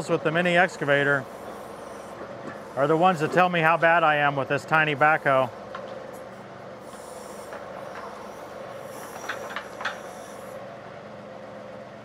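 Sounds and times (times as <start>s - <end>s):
tractor diesel engine running: 0.0s - 10.6s
high hiss: 6.8s - 10.6s.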